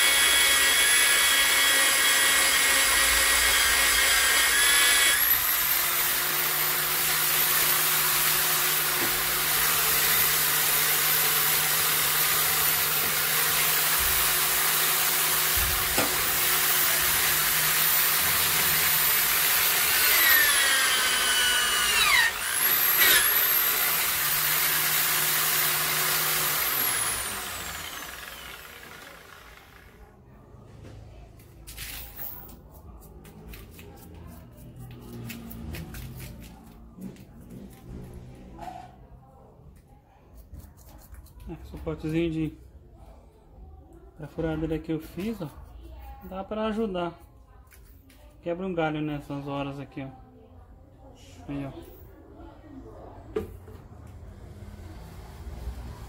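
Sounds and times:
electric drill whining: 0.0 - 30.0.

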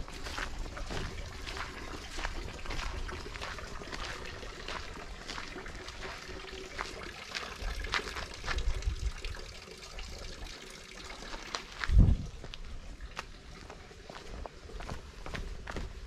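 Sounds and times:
footsteps on gravel and leaves: 0.0 - 9.0, 11.3 - 16.0.

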